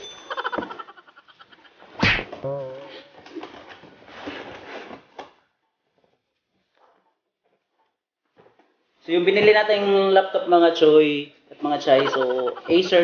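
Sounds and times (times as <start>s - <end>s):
sharp knock: 2.0s - 2.4s.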